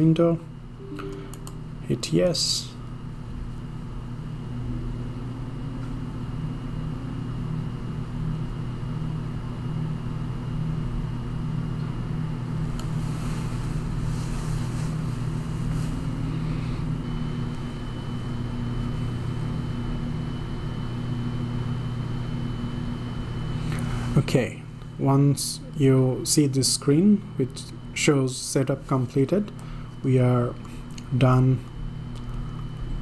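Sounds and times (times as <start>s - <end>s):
low mechanical hum: 0.0s - 33.0s
faint high whine: 0.8s - 2.8s.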